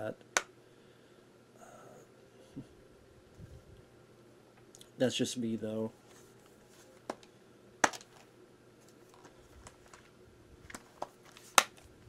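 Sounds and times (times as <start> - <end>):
plastic packaging clicks and taps: 7.1 - 8.3, 10.7 - 11.9.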